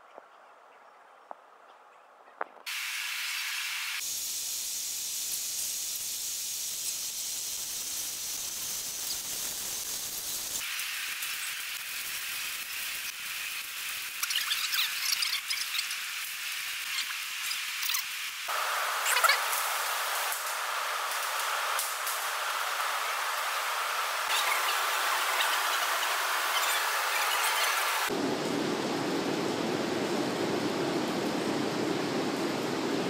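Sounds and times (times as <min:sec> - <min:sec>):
fire crackling: 0:02.5 - 0:33.0
fire hissing loudly: 0:02.7 - 0:28.2.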